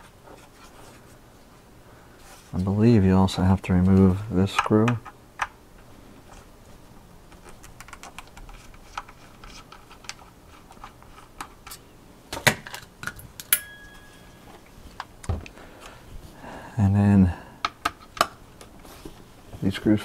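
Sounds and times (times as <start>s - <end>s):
metallic click ringing: 13.5s - 14.4s.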